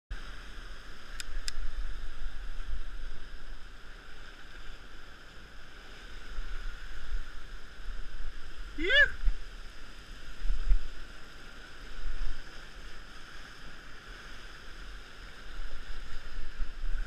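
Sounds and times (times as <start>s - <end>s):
brief clicks: 1.1s - 1.6s.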